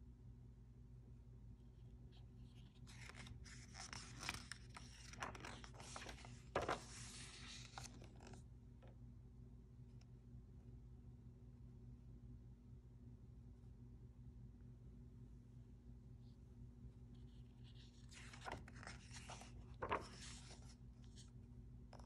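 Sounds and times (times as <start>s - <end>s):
paper rustling and sliding: 2.4s - 8.4s, 17.2s - 21.3s
page slapping: 3.0s - 8.4s, 18.1s - 20.6s.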